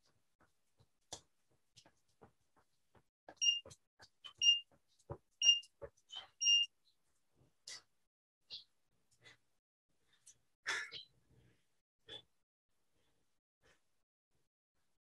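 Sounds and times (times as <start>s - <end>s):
digital timer short high beeps: 3.4s - 3.7s, 4.3s - 4.6s, 5.4s - 5.7s, 6.4s - 6.7s.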